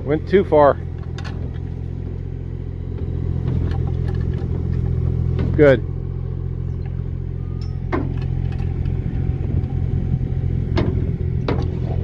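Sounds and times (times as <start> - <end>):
excavator engine running: 0.0 - 12.0
sharp knocks: 10.7 - 11.8.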